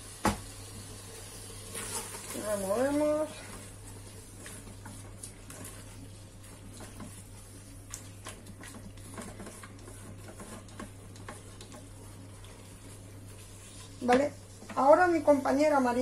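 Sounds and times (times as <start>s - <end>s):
spatula tapping and scraping pot: 4.3s - 15.2s.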